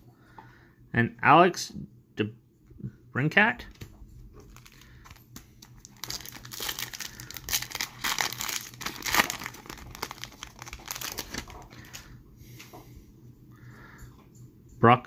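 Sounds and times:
foil wrapper crinkling and tearing: 4.4s - 12.1s.

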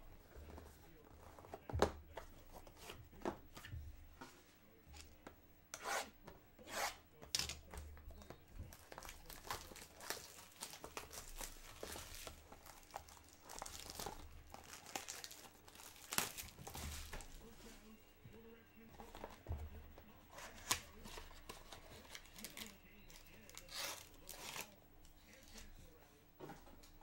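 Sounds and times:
plastic wrap tearing and crinkling: 8.7s - 17.4s, 20.5s - 24.8s.

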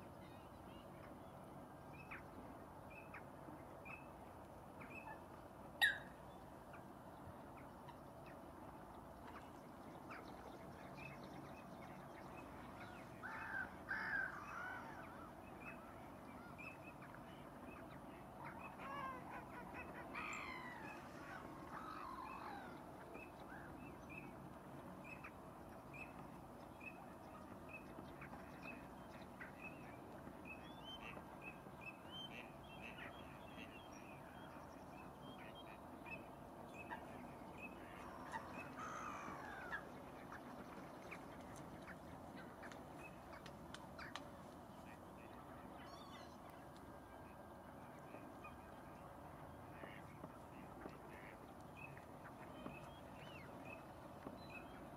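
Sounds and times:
wild birds calling: 5.8s - 6.2s, 12.4s - 16.5s, 37.7s - 44.2s.

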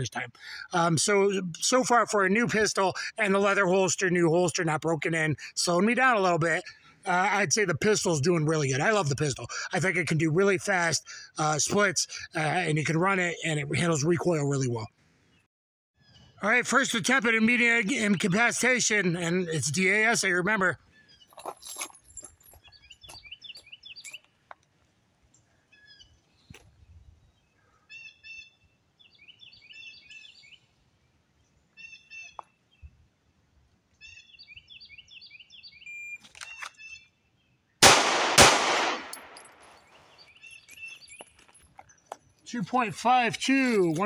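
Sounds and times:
birds chirping: 0.0s - 24.6s, 25.3s - 30.7s, 31.4s - 33.0s, 33.9s - 44.0s
pistol shots echoing: 37.8s - 39.5s.

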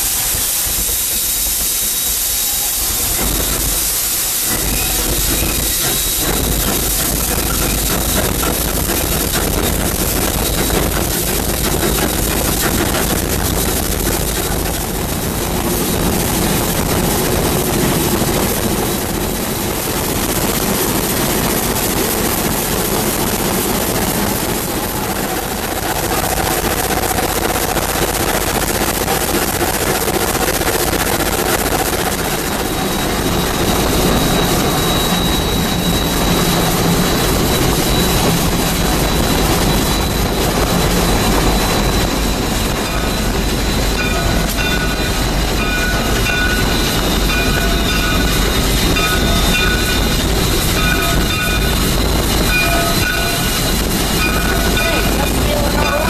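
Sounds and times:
steam locomotive clatter and rush: 0.0s - 56.0s
thin high steady tone: 31.3s - 56.0s.

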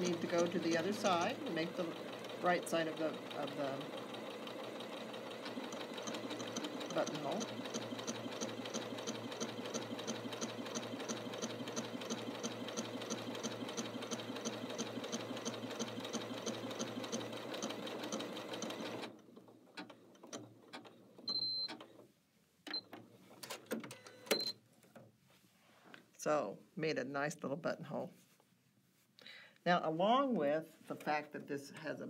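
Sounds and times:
sewing machine clicks: 0.0s - 22.0s
sewing machine stitching: 0.0s - 22.0s.

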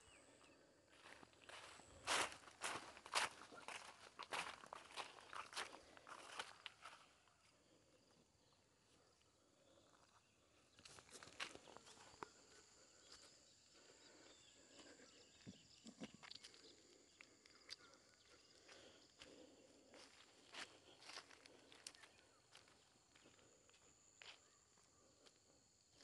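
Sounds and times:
footsteps crunching dry grass: 0.9s - 7.3s, 10.8s - 12.4s, 18.7s - 24.4s.

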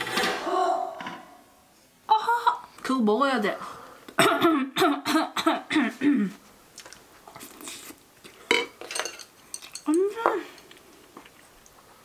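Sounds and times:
chewing: 6.7s - 8.5s, 10.6s - 11.8s.

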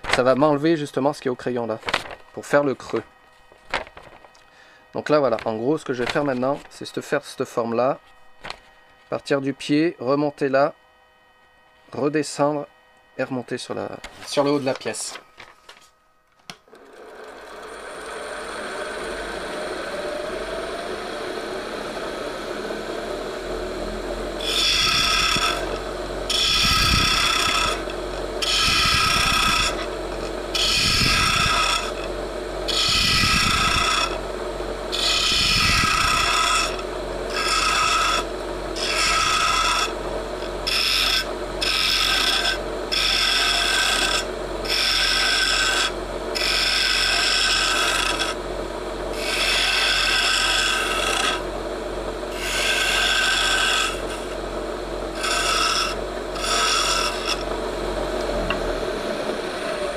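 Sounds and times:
wood lathe running: 16.7s - 59.9s
turning tool scraping wood: 24.4s - 34.2s, 34.9s - 48.4s, 49.1s - 51.5s, 52.3s - 54.4s, 55.1s - 57.6s.

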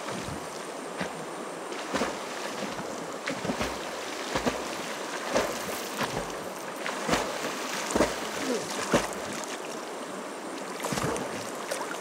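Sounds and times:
swimming strokes splashing: 0.0s - 9.9s, 10.7s - 12.0s
river water flowing: 0.0s - 12.0s.

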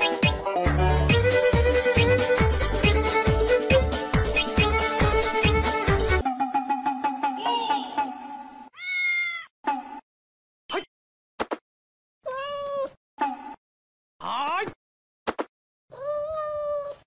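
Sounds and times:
cat meowing: 8.8s - 9.5s, 12.2s - 13.0s, 15.9s - 17.0s.

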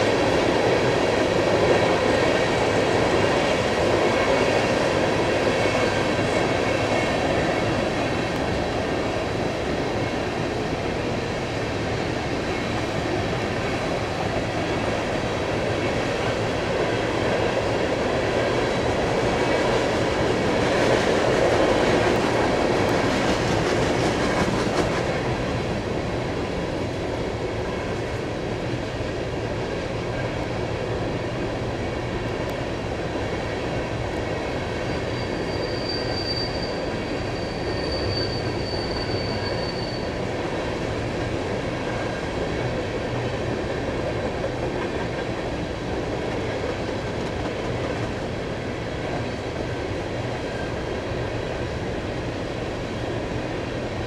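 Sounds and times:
freight train rumble and clatter: 0.0s - 54.0s
thin high squeal: 35.0s - 40.2s.

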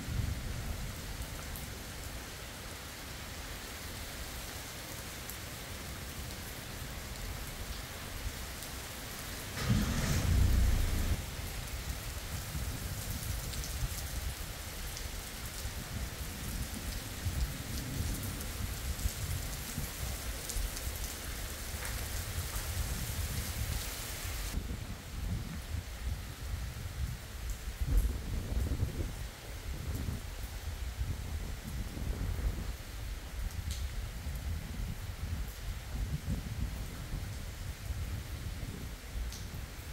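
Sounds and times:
rain falling on road: 0.0s - 39.9s
thunderclap rumbling: 9.5s - 11.8s.

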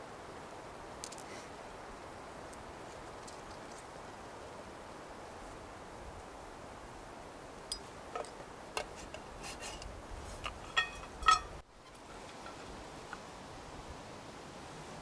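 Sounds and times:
steady low hiss: 0.0s - 15.0s
cookware clinks and knocks: 10.5s - 11.6s.

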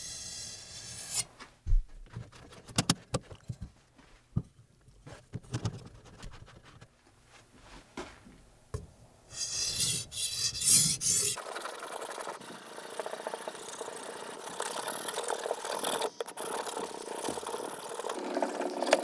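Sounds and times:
blade scraping on whetstone: 0.0s - 1.3s, 9.3s - 11.4s.

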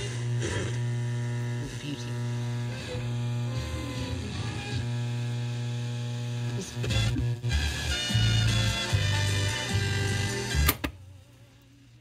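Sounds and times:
faint broadcast voices: 0.0s - 5.2s, 6.4s - 7.4s
radio mains hum: 0.0s - 12.0s.

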